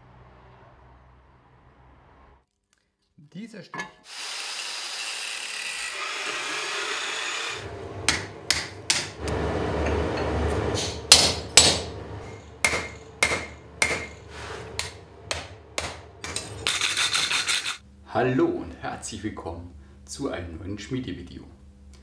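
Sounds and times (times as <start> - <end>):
hammer striking steel on anvil: 8.1 - 16.7.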